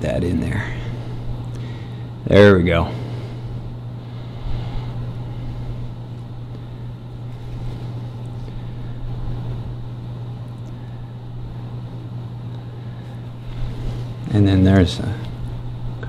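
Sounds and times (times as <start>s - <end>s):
appliance humming: 0.0s - 16.0s.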